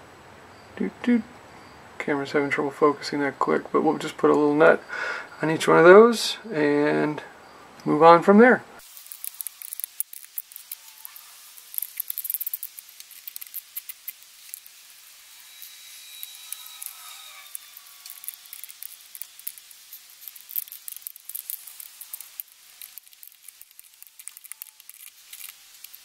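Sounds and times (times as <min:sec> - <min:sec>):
faint squeaky tone: 0:10.7 - 0:11.5, 0:15.3 - 0:19.0.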